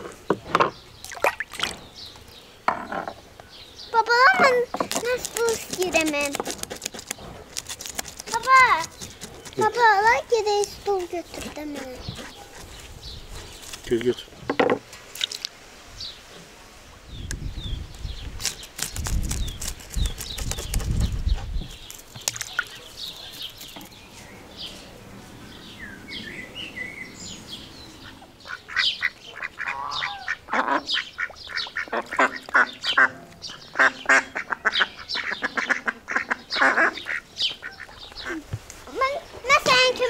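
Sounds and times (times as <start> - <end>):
knife scraping fish scales: 4.8 - 9.8
ducks quacking: 28.0 - 39.0.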